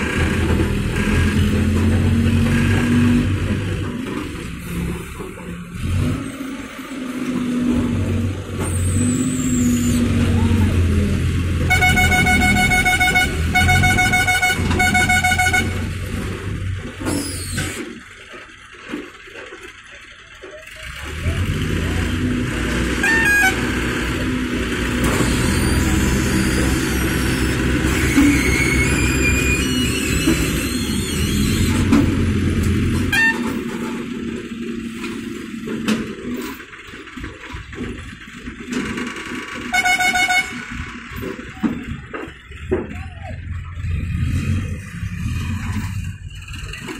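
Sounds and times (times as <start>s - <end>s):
crane diesel engine running: 0.0s - 46.9s
pulsing warning horn: 11.6s - 16.1s, 23.0s - 24.0s, 33.0s - 33.6s, 39.6s - 41.2s.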